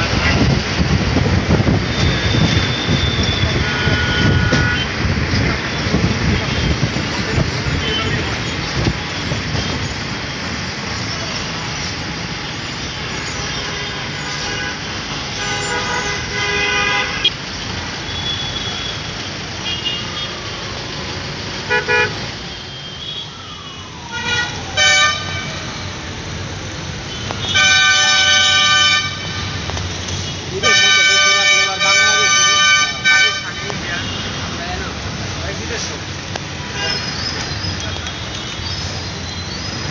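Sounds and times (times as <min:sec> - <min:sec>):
road traffic noise: 0:00.0 - 0:39.9
vehicle horns honking: 0:01.9 - 0:05.0, 0:07.7 - 0:08.4, 0:12.9 - 0:17.4, 0:18.1 - 0:20.6, 0:21.7 - 0:23.3, 0:24.1 - 0:25.8, 0:27.1 - 0:29.6, 0:30.2 - 0:34.6, 0:36.6 - 0:37.2.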